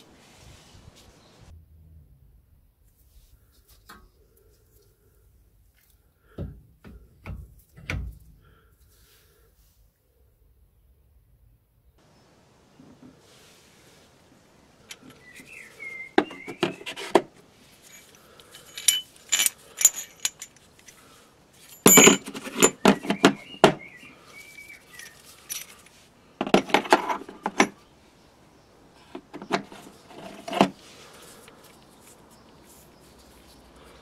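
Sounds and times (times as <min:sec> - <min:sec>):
steel parts clinking into plastic case: 0:16.2 - 0:23.9, 0:24.9 - 0:27.8.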